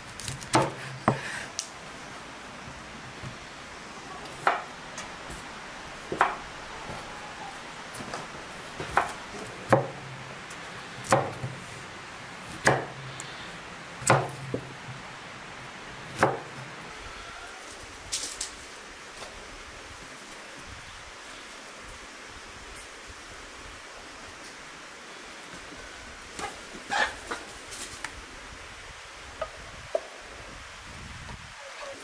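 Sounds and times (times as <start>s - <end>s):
knife chopping on wooden board: 0.3s - 1.3s, 8.8s - 10.0s, 11.0s - 11.6s, 12.6s - 13.0s, 14.0s - 14.6s.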